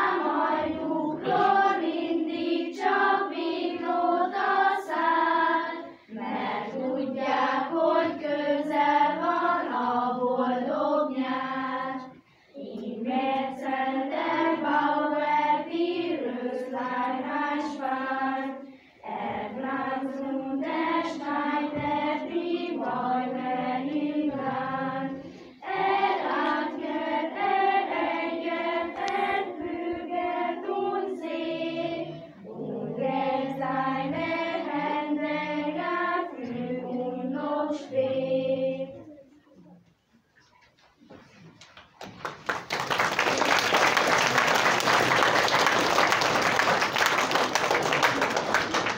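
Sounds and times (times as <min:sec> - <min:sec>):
children's choir singing: 0:00.0 - 0:39.8
singers breathing: 0:18.6 - 0:19.0.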